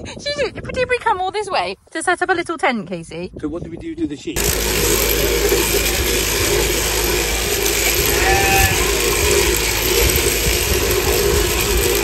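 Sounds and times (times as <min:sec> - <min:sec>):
sheep-shearing machine running: 0:04.4 - 0:12.0.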